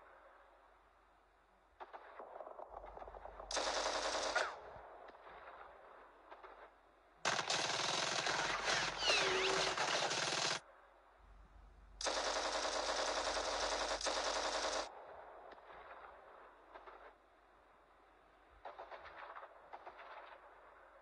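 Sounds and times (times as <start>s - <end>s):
machine-gun fire: 3.2s - 5.7s, 7.3s - 10.6s, 12.0s - 14.9s.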